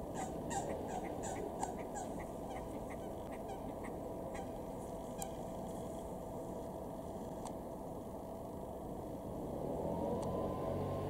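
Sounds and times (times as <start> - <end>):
waterfowl calling: 0.0 - 5.4
low background rumble: 0.0 - 11.0.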